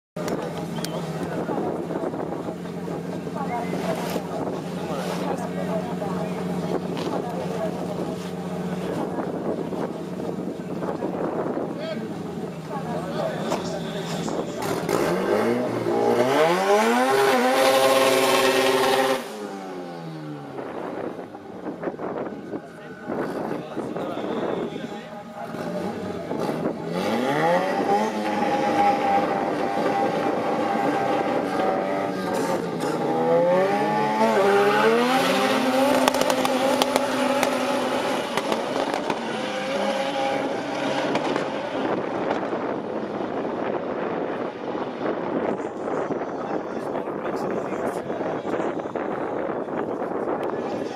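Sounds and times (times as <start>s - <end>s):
exhaust pops and crackles: 0.2s - 5.5s, 35.3s - 39.3s, 40.7s - 43.7s
car engine revving: 0.2s - 46.0s.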